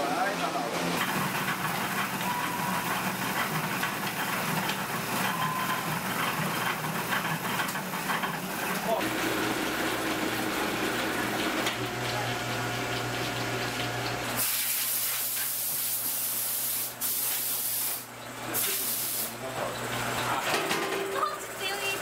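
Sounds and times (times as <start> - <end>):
machinery humming: 0.0 - 14.4.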